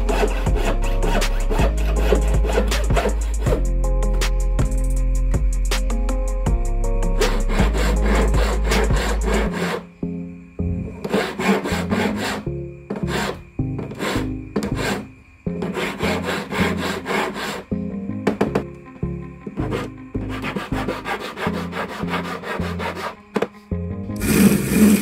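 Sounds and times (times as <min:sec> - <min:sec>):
hand file scraping metal: 0:00.0 - 0:03.7, 0:07.1 - 0:09.9, 0:11.0 - 0:17.7, 0:19.6 - 0:23.2, 0:24.2 - 0:25.0.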